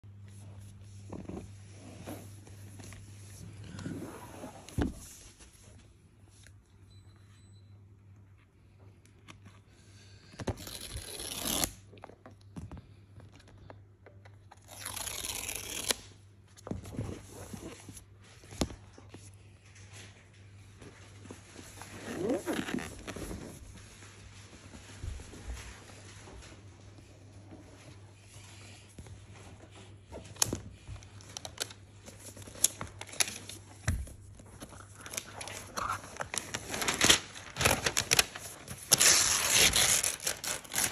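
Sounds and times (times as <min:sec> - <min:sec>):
paper tear strip ripping: 0:10.6 - 0:11.8, 0:14.6 - 0:16.1, 0:36.8 - 0:40.9.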